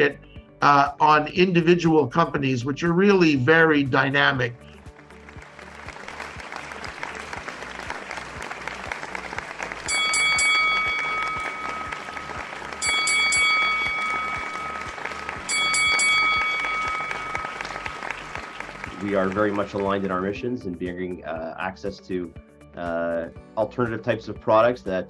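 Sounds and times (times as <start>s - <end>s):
applause: 4.7s - 20.4s
bell ringing: 9.8s - 20.2s.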